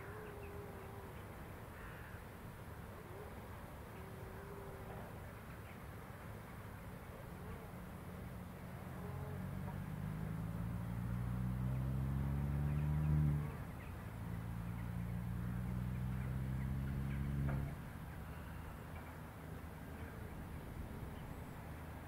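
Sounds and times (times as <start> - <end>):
low engine drone: 7.5 - 22.0.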